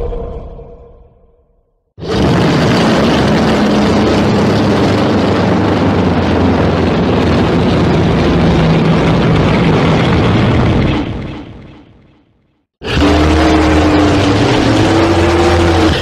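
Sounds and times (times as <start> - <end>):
low monster roar: 2.0 - 10.7, 12.8 - 16.0.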